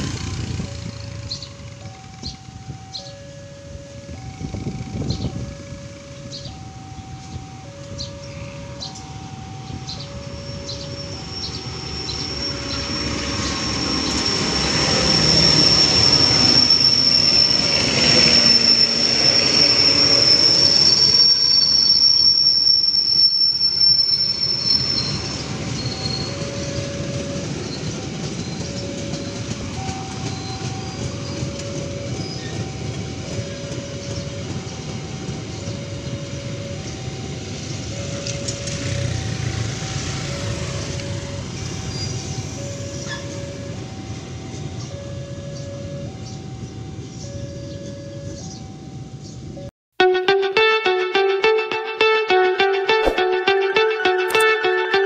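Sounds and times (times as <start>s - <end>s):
level crossing two-tone alarm: 0.0s - 55.0s
train wheels rolling on rails: 8.9s - 46.6s
high wheel squeal: 10.0s - 32.8s.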